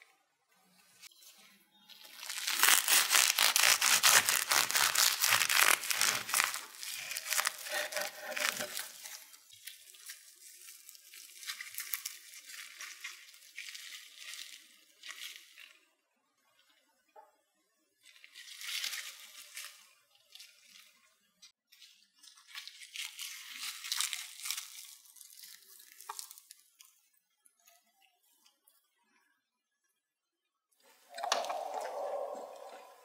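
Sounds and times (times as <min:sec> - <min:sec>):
thin sheet crinkling: 0:00.8 - 0:15.7, 0:21.9 - 0:26.7.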